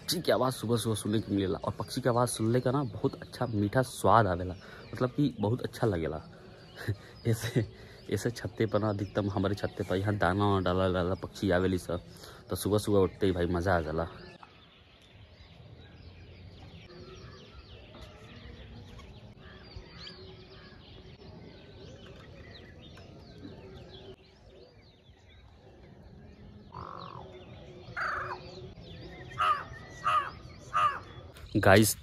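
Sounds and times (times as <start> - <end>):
small birds chirping: 0.0 - 32.0
crow cawing: 28.0 - 28.4, 29.4 - 31.1.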